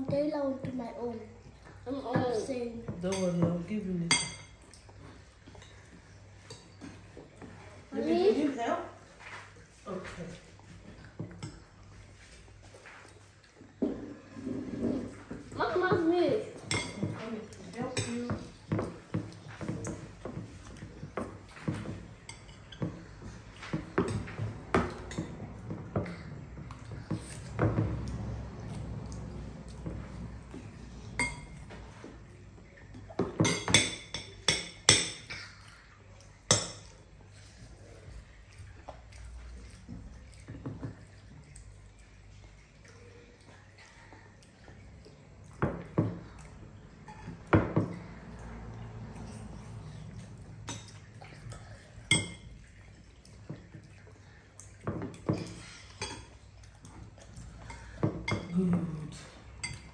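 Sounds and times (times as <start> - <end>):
spoons clinking against bowls: 4.1 - 4.7, 16.6 - 17.2, 31.2 - 31.6, 36.5 - 36.9, 52.1 - 52.5, 55.3 - 56.4.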